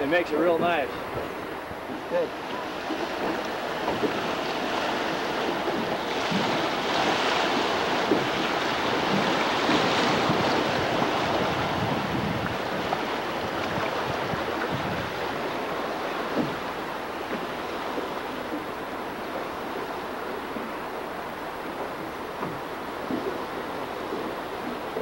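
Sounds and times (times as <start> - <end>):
river water rushing: 0.0 - 25.0.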